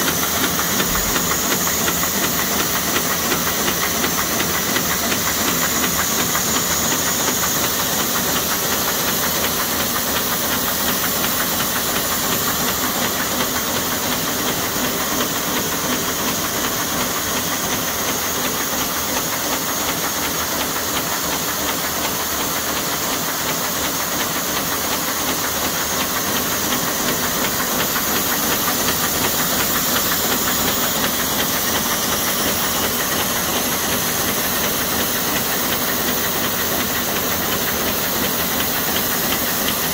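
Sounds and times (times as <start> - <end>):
machine clattering with fine ticks: 17.4 - 39.9.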